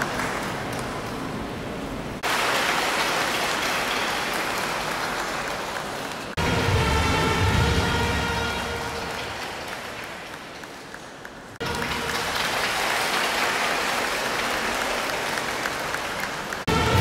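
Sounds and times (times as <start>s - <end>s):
congregation applauding: 0.0s - 1.0s, 2.2s - 17.0s
background music: 6.4s - 9.8s, 16.7s - 17.0s.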